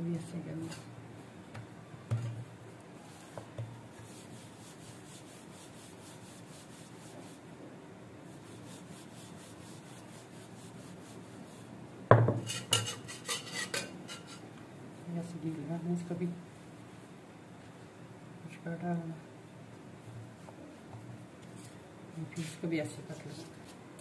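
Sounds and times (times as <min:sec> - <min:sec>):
rolling pin rubbing dough: 0:08.3 - 0:11.7.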